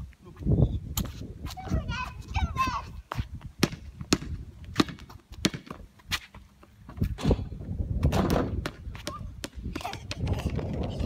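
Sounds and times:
basketball bouncing on concrete: 3.1 - 7.4, 8.0 - 11.0.

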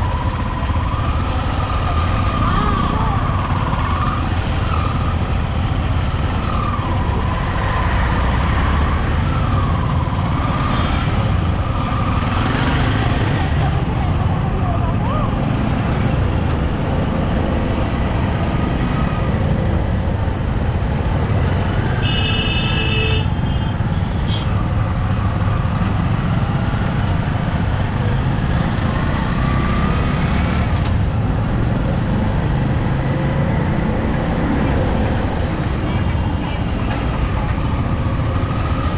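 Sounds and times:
motorcycle engine and wind: 0.0 - 38.9
vehicle horn: 22.0 - 24.5.

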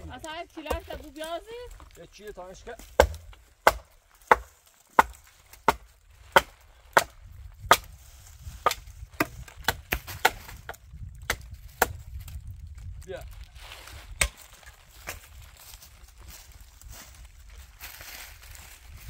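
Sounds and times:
axe chopping wood: 0.6 - 1.2, 2.8 - 8.0, 8.6 - 12.0, 14.2 - 15.2.

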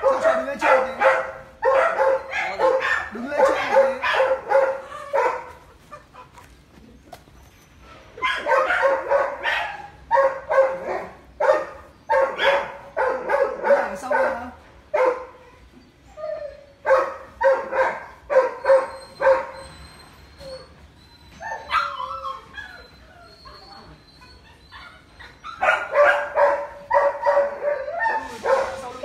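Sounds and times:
dog barking sharply: 0.0 - 5.6, 8.2 - 14.4.

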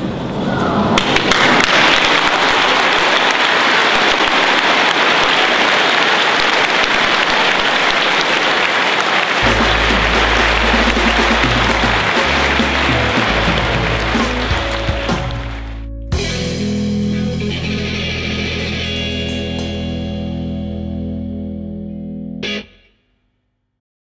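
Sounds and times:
crowd applause: 1.0 - 15.9
music with steady bass: 9.4 - 22.9.

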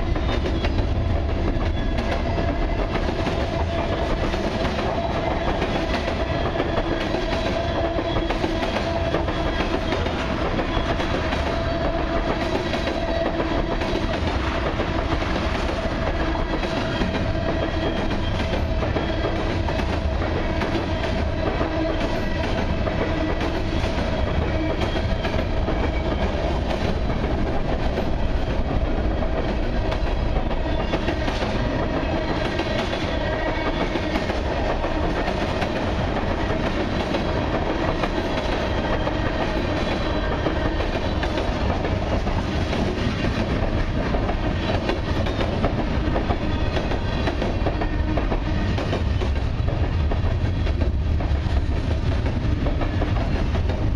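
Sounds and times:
freight train rolling past: 0.0 - 53.9.

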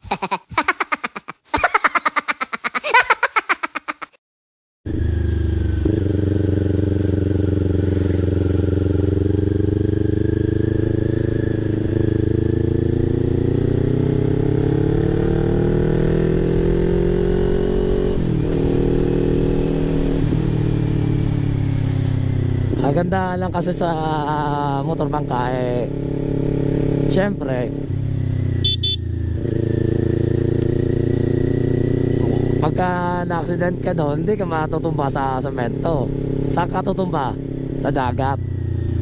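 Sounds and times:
man laughing: 0.0 - 4.2
motorcycle engine running: 4.9 - 39.0.

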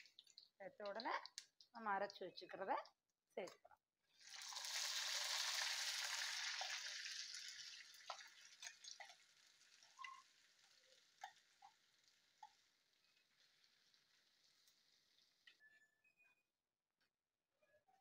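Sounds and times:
small clicks and pops: 0.0 - 3.6, 8.1 - 15.8
paste sizzling in hot oil: 4.1 - 15.4.

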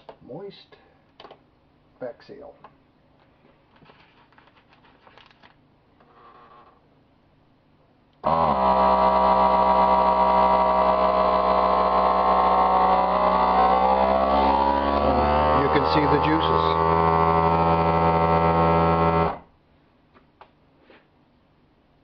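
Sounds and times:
handling sounds: 3.2 - 5.6
vacuum sealer pump humming: 8.2 - 19.5.

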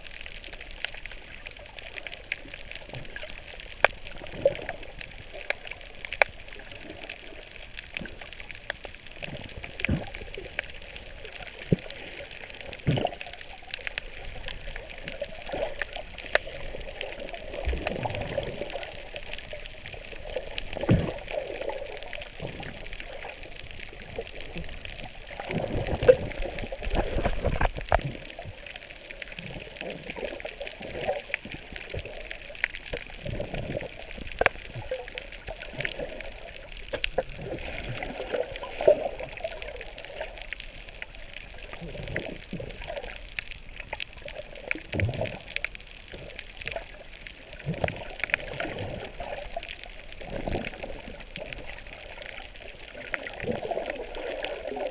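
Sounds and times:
underwater gurgling and bubbling: 0.0 - 54.9
underwater clicks and knocks: 8.0 - 10.7, 12.7 - 13.3, 20.6 - 21.4, 24.1 - 28.6, 29.4 - 36.2.

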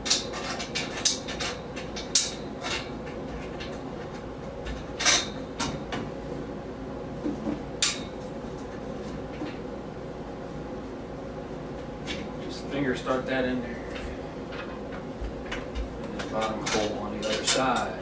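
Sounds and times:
metal shelf parts clinking: 0.0 - 5.8, 7.8 - 8.8, 16.2 - 18.0.

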